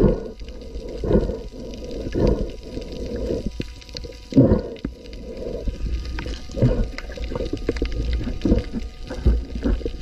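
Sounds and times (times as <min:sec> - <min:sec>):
low underwater rumble: 0:00.0 - 0:10.0
water gurgling and sloshing: 0:00.0 - 0:10.0.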